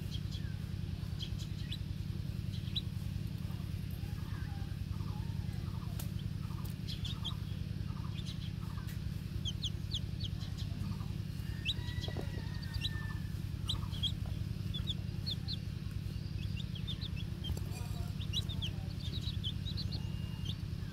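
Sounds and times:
chicks peeping: 0.0s - 20.9s
steady low rumble: 0.0s - 20.9s.

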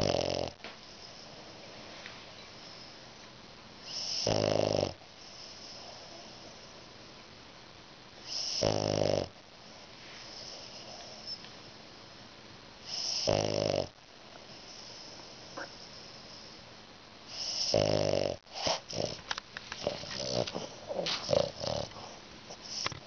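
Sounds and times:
dog snoring: 0.0s - 1.4s, 3.8s - 6.7s, 8.2s - 9.4s, 12.8s - 16.6s, 17.3s - 23.0s
dog breathing: 17.3s - 23.0s.

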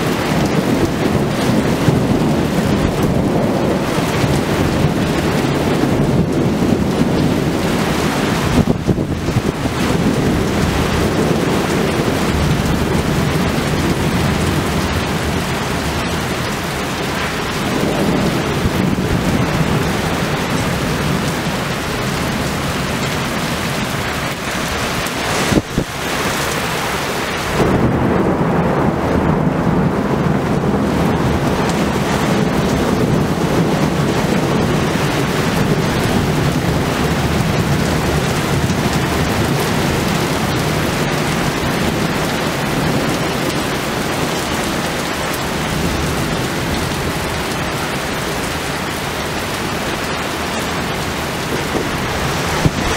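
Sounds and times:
deep rolling thunder: 0.0s - 52.9s
heavy rain pouring: 0.0s - 52.9s
sharp thunder crack: 27.5s - 34.0s, 51.6s - 52.9s.

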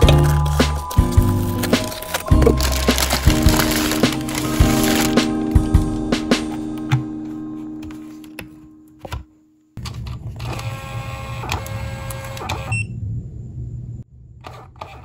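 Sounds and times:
background music: 0.0s - 9.2s.

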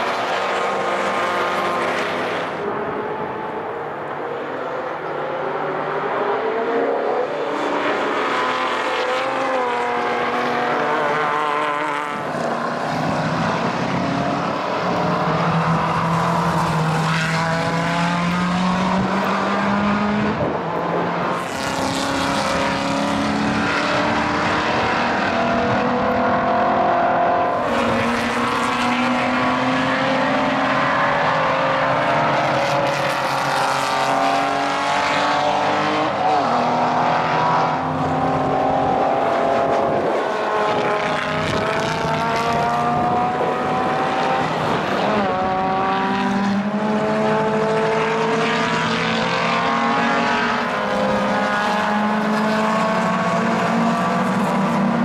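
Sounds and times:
racing car engines accelerating: 0.0s - 55.0s.

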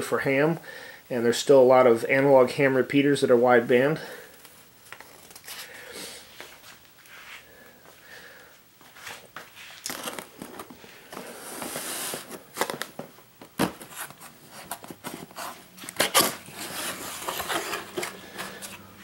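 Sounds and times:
cardboard rustling: 9.0s - 18.9s
cardboard box sliding on table: 11.1s - 12.4s.

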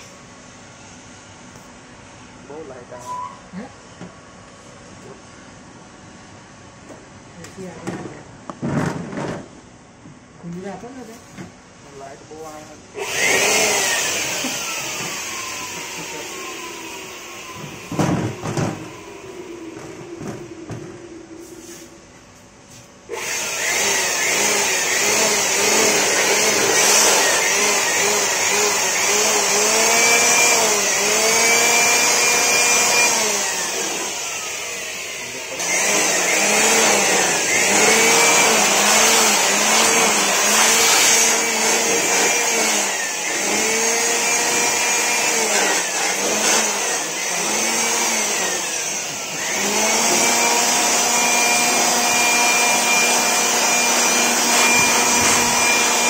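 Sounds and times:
electric dust blower running: 12.4s - 56.0s.

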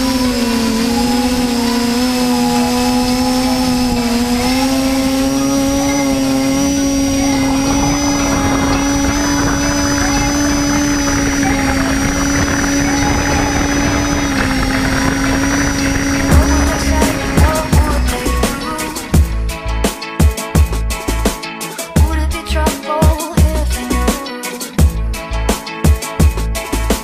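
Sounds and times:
drone motors whining: 0.0s - 19.9s
rushing noise: 0.0s - 19.9s.

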